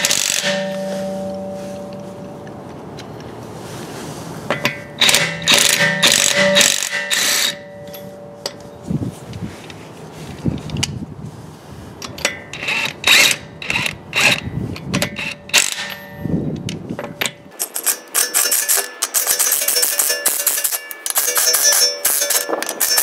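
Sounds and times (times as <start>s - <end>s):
impact driver hammering: 0.0s - 2.0s, 4.5s - 8.6s.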